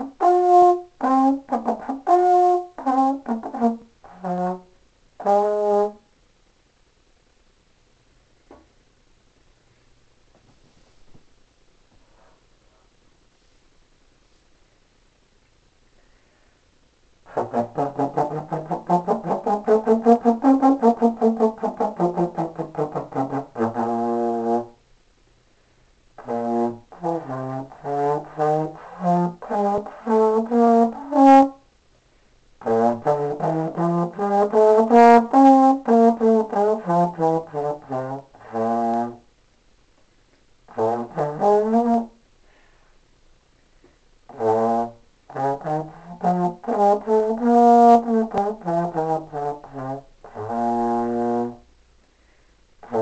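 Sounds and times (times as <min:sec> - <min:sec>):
solo trombone playing: 0:00.0 - 0:06.1, 0:17.3 - 0:24.8, 0:26.2 - 0:31.6, 0:32.6 - 0:39.3, 0:40.7 - 0:42.2, 0:44.3 - 0:51.7, 0:52.8 - 0:53.0.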